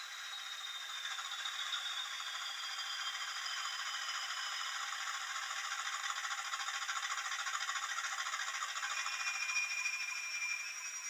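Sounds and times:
high falling whistle: 0:09.0 - 0:11.0.

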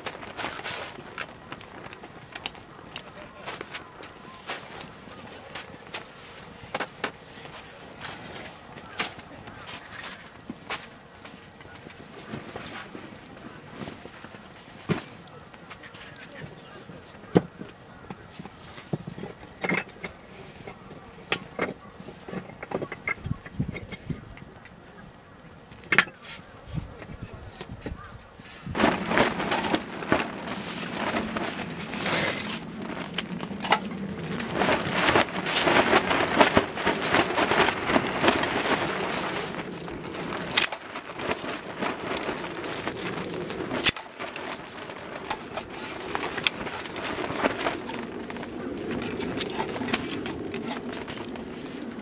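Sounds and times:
briquettes clinking on metal: 0:00.0 - 0:16.2, 0:28.7 - 0:52.0
wood fire crackling: 0:00.0 - 0:52.0.

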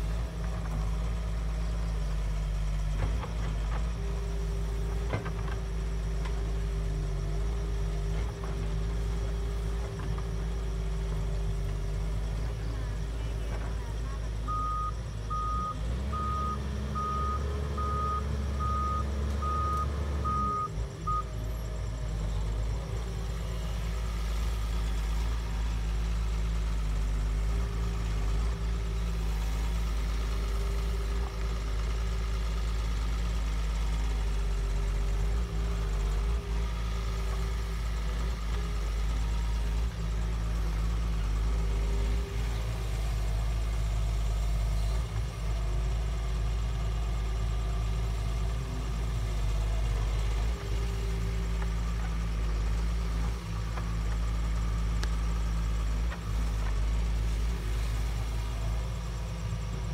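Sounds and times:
excavator diesel engine running: 0:00.0 - 0:59.9
warning alarm beeps: 0:14.2 - 0:21.5.

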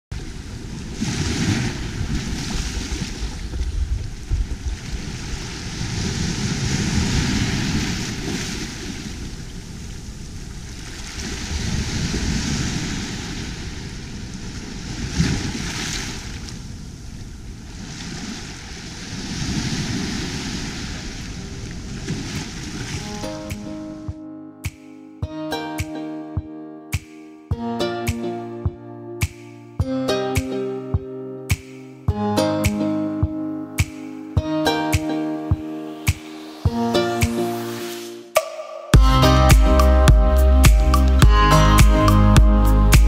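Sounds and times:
small waves breaking on sand: 0:00.2 - 0:24.0
sharp water splash: 0:00.9 - 0:03.9.

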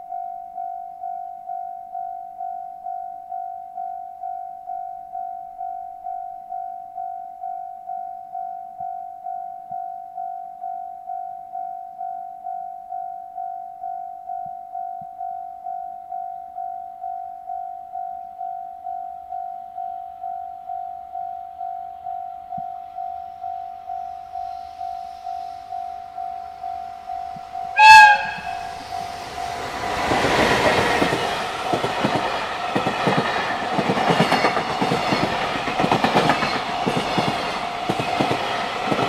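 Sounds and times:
level crossing warning bell: 0:08.4 - 0:39.0.

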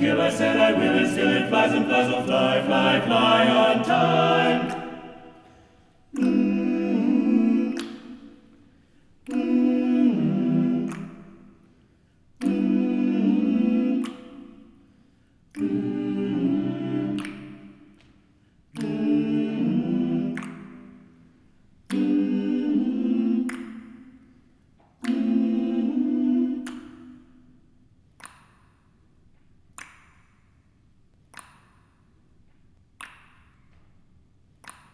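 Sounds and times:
men's a cappella choir singing: 0:00.0 - 0:08.6, 0:09.2 - 0:11.7, 0:12.4 - 0:14.8, 0:15.6 - 0:17.9, 0:18.8 - 0:21.1, 0:21.9 - 0:24.2, 0:25.0 - 0:27.2.

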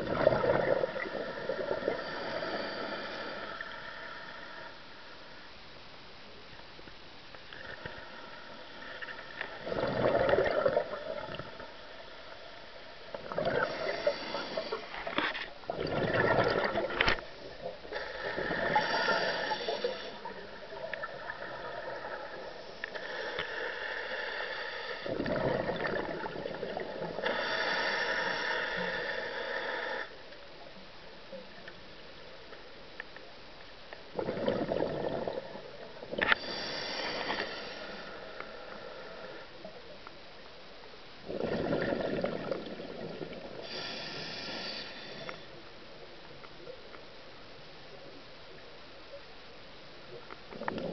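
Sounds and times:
exhaled bubbles burbling: 0:00.0 - 0:02.7, 0:09.5 - 0:11.6, 0:13.1 - 0:14.8, 0:15.6 - 0:22.5, 0:25.0 - 0:27.2, 0:34.1 - 0:36.3, 0:41.2 - 0:43.7, 0:50.5 - 0:50.9
regulator inhalation hiss: 0:00.9 - 0:05.4, 0:13.5 - 0:15.2, 0:17.9 - 0:25.2, 0:27.0 - 0:30.2, 0:36.2 - 0:39.5, 0:43.6 - 0:45.6.

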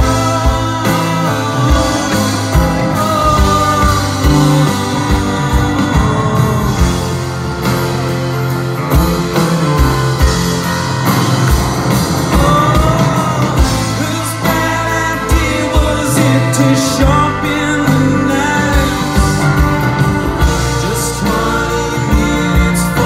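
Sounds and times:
rock band with orchestra: 0:00.0 - 0:23.0.

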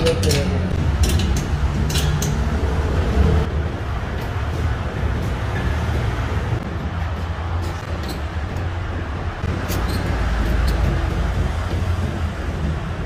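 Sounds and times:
hand tools clinking: 0:00.0 - 0:02.5
workshop background rumble: 0:00.0 - 0:13.0.

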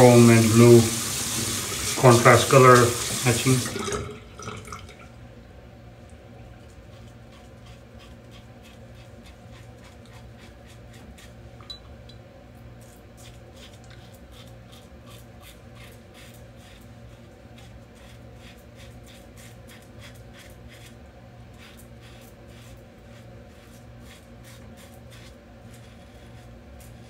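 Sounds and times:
razor scraping stubble: 0:06.9 - 0:11.4, 0:12.8 - 0:27.0.

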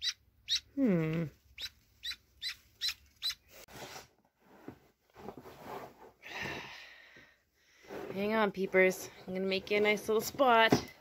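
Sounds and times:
ducklings peeping: 0:00.0 - 0:00.7, 0:01.5 - 0:03.6
rustling: 0:01.2 - 0:06.2.

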